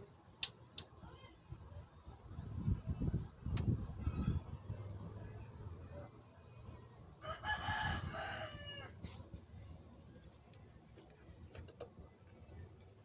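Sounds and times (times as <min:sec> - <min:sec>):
rooster crowing: 0:07.2 - 0:09.2.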